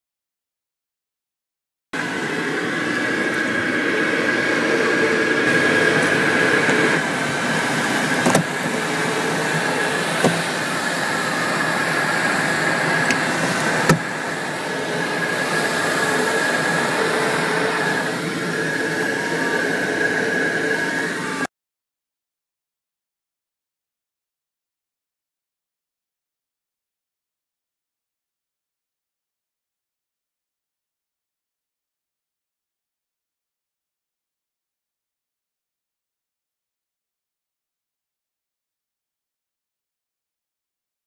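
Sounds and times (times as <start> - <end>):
airflow rushing over canopy: 2.0 - 21.5.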